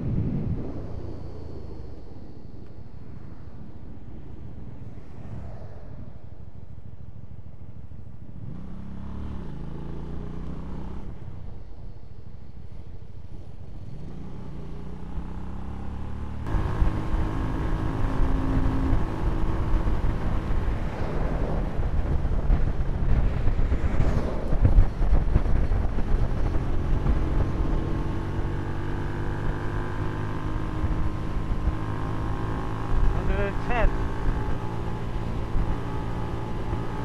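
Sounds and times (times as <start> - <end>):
wind on microphone: 0.0 - 8.8, 16.4 - 37.0
motorcycle engine running: 13.8 - 37.0.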